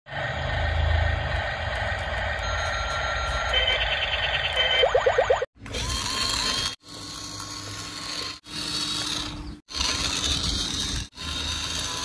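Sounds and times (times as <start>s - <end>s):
toy vehicle motor whirring: 5.6s - 12.0s.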